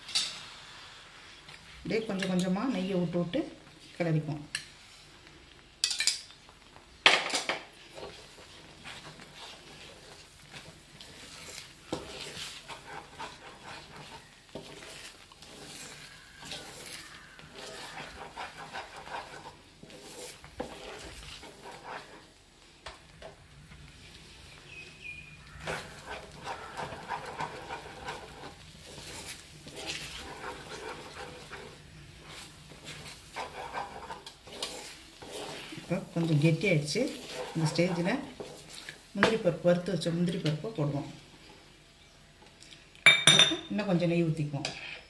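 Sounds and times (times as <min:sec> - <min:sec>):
thick paste squelching: 0:08.0 - 0:22.2, 0:24.7 - 0:36.3.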